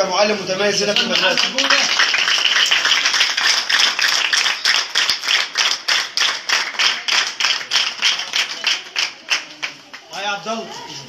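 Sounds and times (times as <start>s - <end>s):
children clapping: 0.8s - 10.2s.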